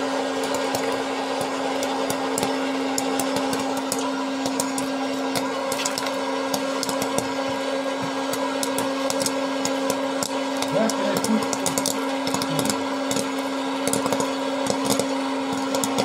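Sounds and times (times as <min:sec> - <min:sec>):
popcorn popper fan humming: 0:00.0 - 0:16.0
corn kernels popping: 0:00.3 - 0:16.0.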